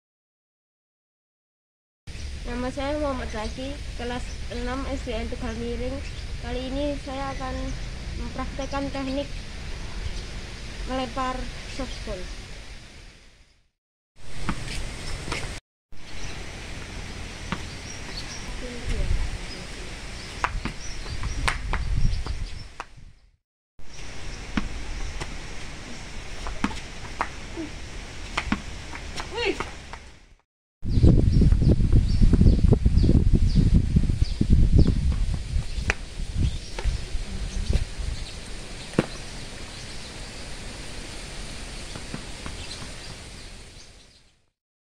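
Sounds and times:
outdoor hiss: 0:14.2 - 0:20.6, 0:23.9 - 0:30.1, 0:35.7 - 0:44.2
ball bouncing on concrete: 0:14.4 - 0:15.6, 0:17.4 - 0:19.0, 0:20.2 - 0:23.0, 0:24.5 - 0:30.2, 0:35.8 - 0:36.1, 0:38.9 - 0:39.2, 0:41.9 - 0:43.1.

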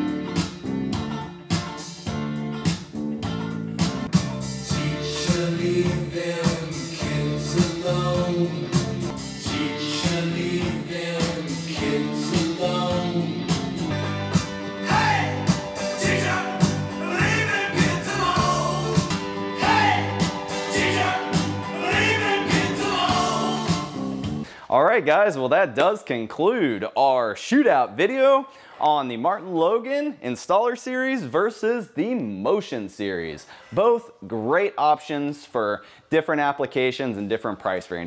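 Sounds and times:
song with steady beat and bass: 0:00.0 - 0:24.5
person singing: 0:04.6 - 0:14.0, 0:14.7 - 0:24.1.

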